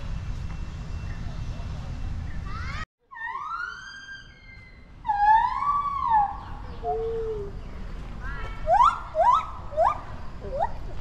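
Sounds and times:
animal calling: 0:02.5 - 0:07.6, 0:08.6 - 0:10.9.

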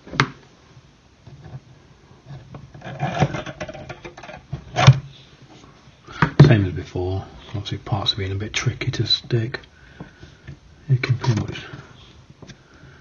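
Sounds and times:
hand tool scraping wood: 0:01.3 - 0:05.6.

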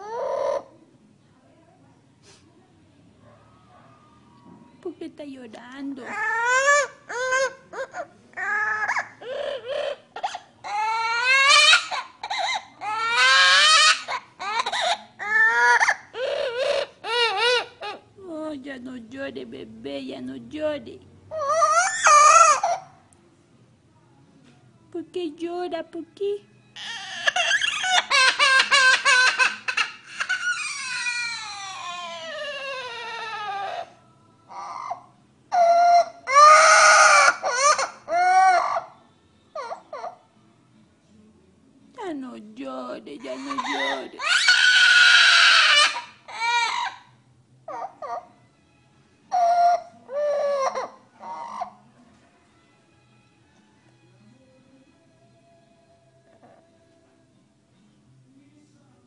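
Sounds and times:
parrot mimicking crying baby: 0:00.0 - 0:00.8, 0:06.0 - 0:18.2, 0:21.3 - 0:23.0, 0:26.8 - 0:40.4, 0:43.2 - 0:48.5, 0:49.2 - 0:52.0.

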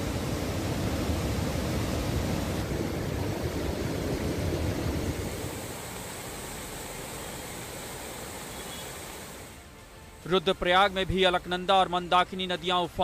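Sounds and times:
rushing floodwater: 0:00.0 - 0:09.8.

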